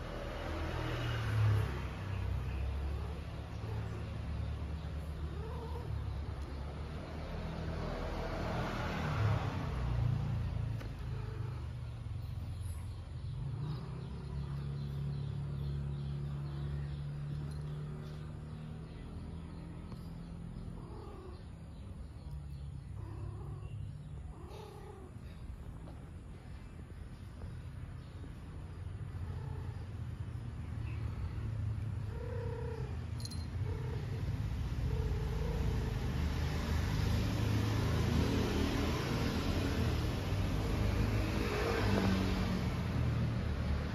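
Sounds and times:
engine rumbling: 0.0s - 43.9s
cat growling: 2.8s - 6.8s, 10.7s - 12.2s, 20.4s - 21.7s, 22.7s - 25.7s, 29.0s - 30.0s, 31.8s - 36.0s.

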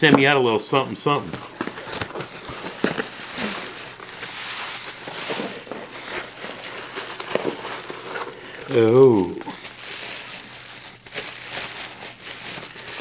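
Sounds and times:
cardboard box being opened: 1.3s - 9.4s.

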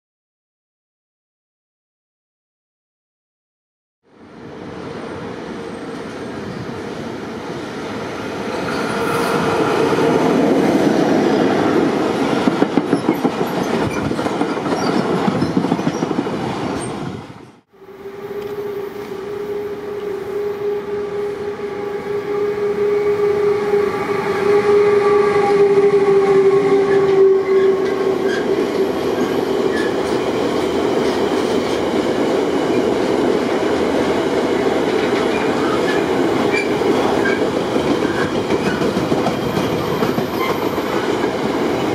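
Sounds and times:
locomotive steady pitched tone: 17.8s - 31.5s
train wheels clicking over rail joints: 35.0s - 41.9s.

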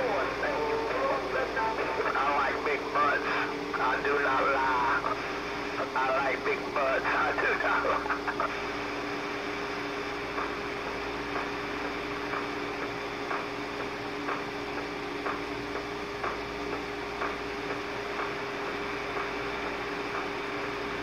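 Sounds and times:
radio static hiss: 0.0s - 21.0s.

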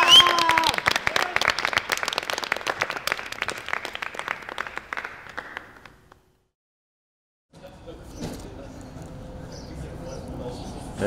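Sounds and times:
people clapping: 0.0s - 6.3s.

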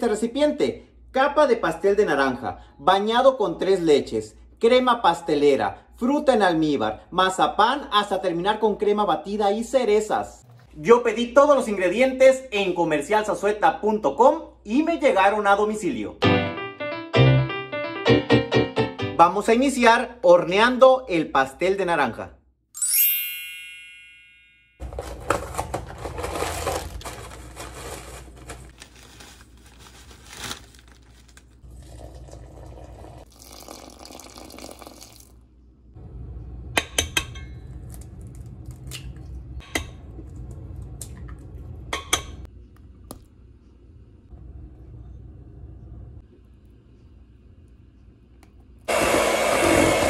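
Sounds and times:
cake mix pouring: 25.0s - 35.4s
water and oil pouring: 31.6s - 35.4s.

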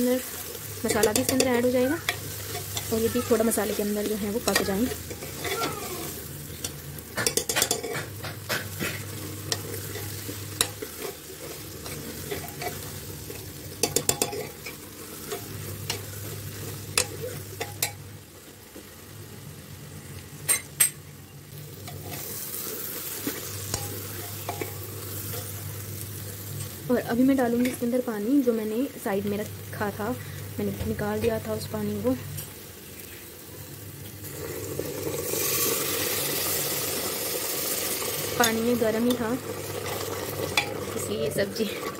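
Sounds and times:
masala sizzling: 0.0s - 41.9s
spoon scraping a pot: 6.6s - 16.1s.

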